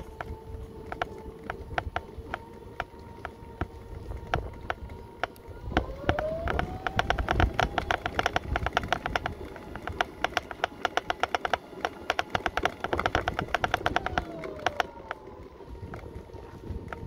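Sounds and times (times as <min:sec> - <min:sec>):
fast clicking rattle: 0:00.0 - 0:15.2
electric motor whining: 0:00.0 - 0:17.0.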